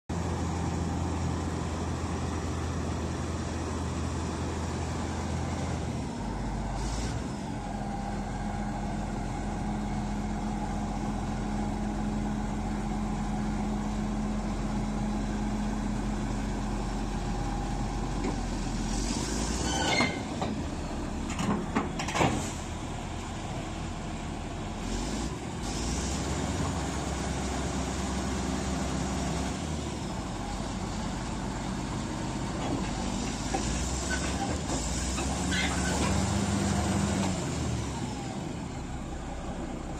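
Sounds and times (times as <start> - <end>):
bulldozer diesel engine idling: 0.1 - 25.6, 26.2 - 39.9
sharp knocks and hisses: 21.8 - 22.7.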